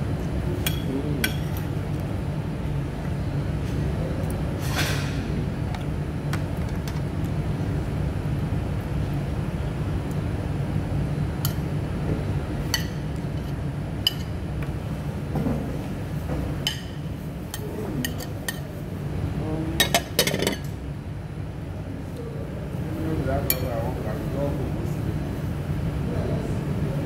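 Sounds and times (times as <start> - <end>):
low room hum: 0.0 - 27.0
fork clinking and scraping plates: 19.8 - 20.7.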